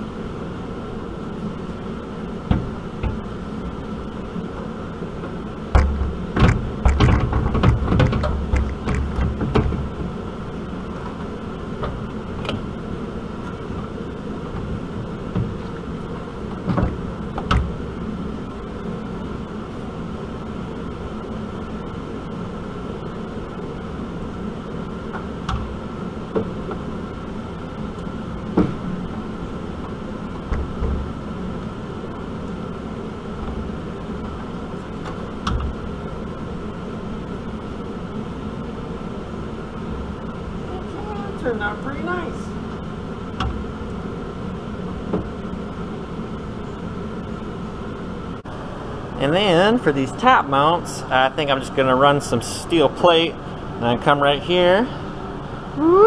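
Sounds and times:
steady hum: 0.0s - 56.0s
metal clunks and rattles: 5.2s - 10.2s, 14.5s - 17.9s
single knocks: 5.7s - 10.0s.

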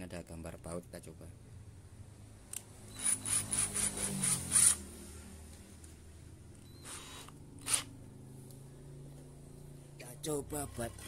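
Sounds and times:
drill chuck turning gritty rub: 2.9s - 4.8s, 6.7s - 7.9s.

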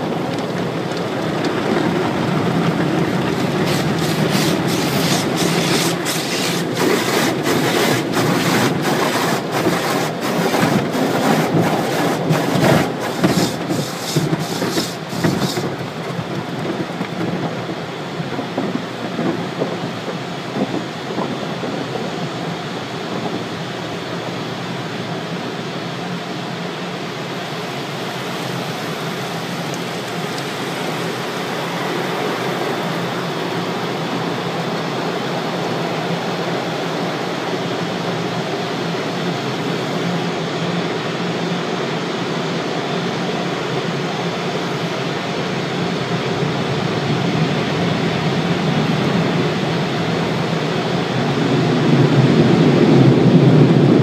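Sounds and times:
car wash brushes slapping: 2.5s - 17.4s
running water: 3.2s - 15.8s
water spraying on glass: 3.2s - 15.9s.

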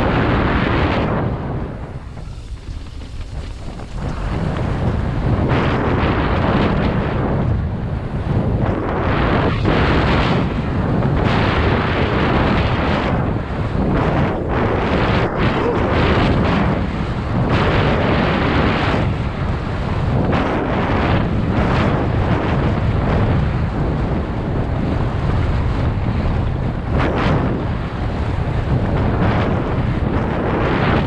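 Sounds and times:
bike tyres rolling on gravel: 0.0s - 8.3s
wind rushing over microphone: 0.0s - 31.0s.

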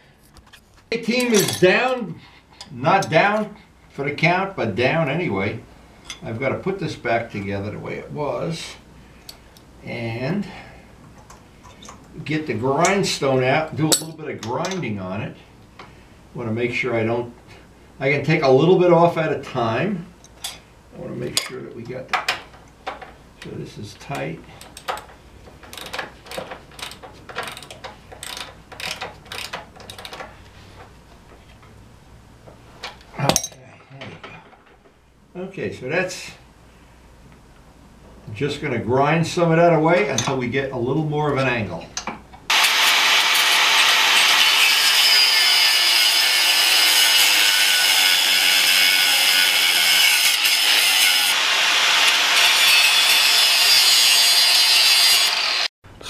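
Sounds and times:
ratchet wrench clicking: 25.7s - 30.2s
angle grinder grinding metal: 42.5s - 55.7s.

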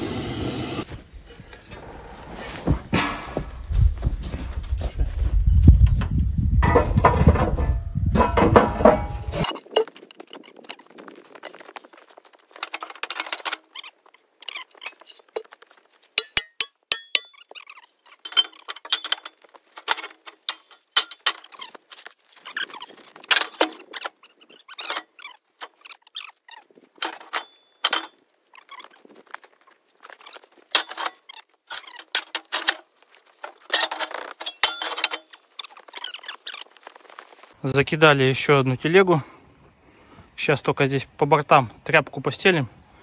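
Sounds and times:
scrap steel clanking: 0.8s - 3.8s, 6.6s - 10.0s, 18.1s - 21.8s, 30.7s - 35.5s.

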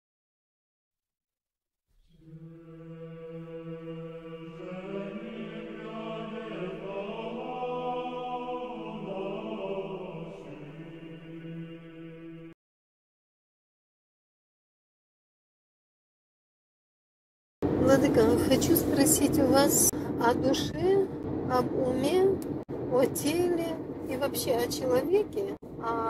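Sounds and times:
choir singing a chant: 2.1s - 12.6s
low held drone: 2.2s - 12.6s.

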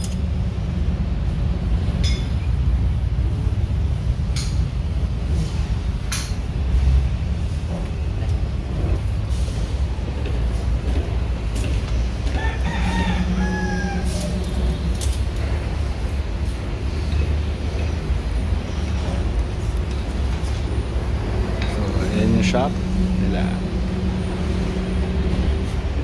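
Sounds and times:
steady low rumble: 0.0s - 26.0s
rooster crowing: 12.2s - 14.8s.

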